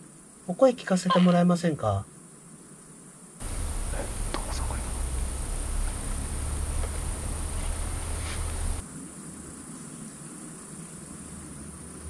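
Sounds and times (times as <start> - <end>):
chorus of night insects: 0.0 - 12.0
low hum: 3.4 - 8.8.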